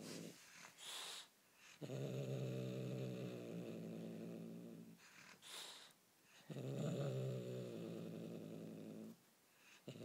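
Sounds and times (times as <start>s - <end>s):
kitten growling low: 6.4s - 9.2s.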